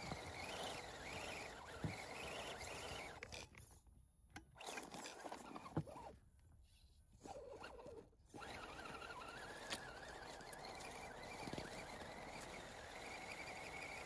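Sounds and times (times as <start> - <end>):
electric motor and gearbox whining: 0.0 - 3.3, 7.6 - 14.0.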